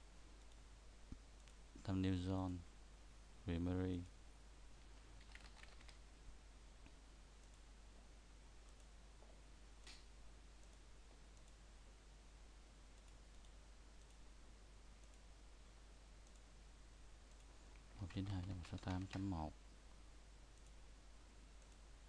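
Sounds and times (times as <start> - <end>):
faint microphone hiss: 0.0 - 22.0
computer mouse clicks: 5.2 - 6.0, 9.8 - 11.6, 13.0 - 14.2, 16.2 - 16.5, 20.6 - 20.8, 21.6 - 21.8.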